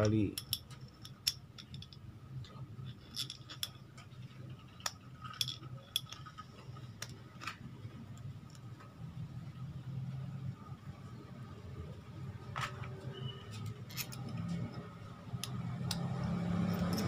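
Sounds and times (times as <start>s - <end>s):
low steady hum: 0.0s - 17.0s
small metallic clicks: 13.5s - 17.0s.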